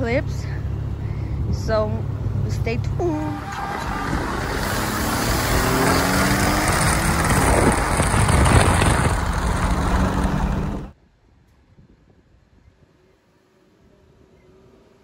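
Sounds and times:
car exhaust running loud: 3.3 - 10.9.

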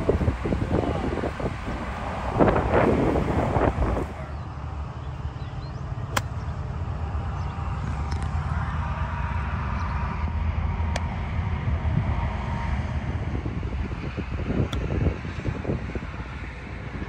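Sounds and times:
wind buffeting microphone: 0.0 - 17.0
golf club striking ball: 6.1 - 6.4.

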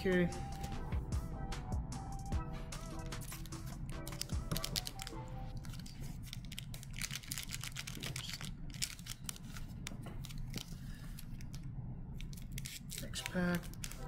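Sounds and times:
cards rustling and crinkling: 3.0 - 14.0.

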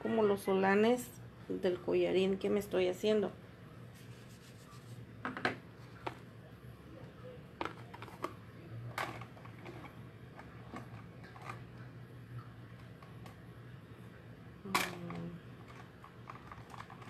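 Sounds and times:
faint low hum: 0.0 - 17.0
makeup sponge dabbing skin: 3.9 - 5.1.

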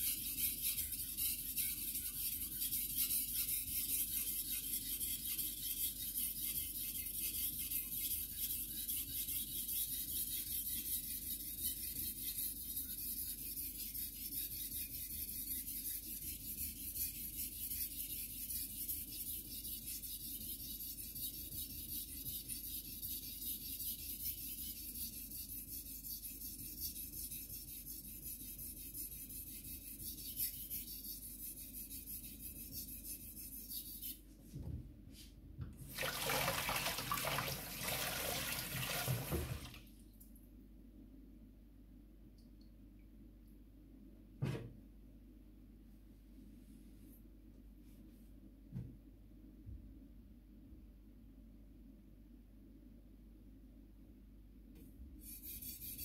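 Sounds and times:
knife scraping on whetstone: 0.0 - 34.2.

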